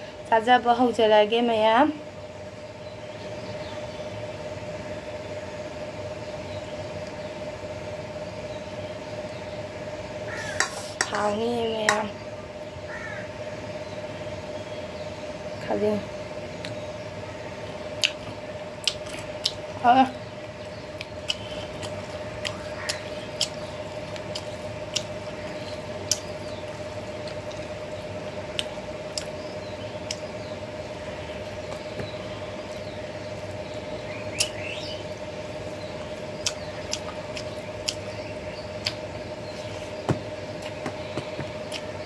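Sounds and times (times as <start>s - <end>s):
steady low hum: 0.0s - 42.0s
wet mouth clicks while chewing: 18.0s - 18.2s, 18.8s - 19.6s, 21.0s - 25.1s, 26.1s - 26.3s, 28.6s - 29.3s.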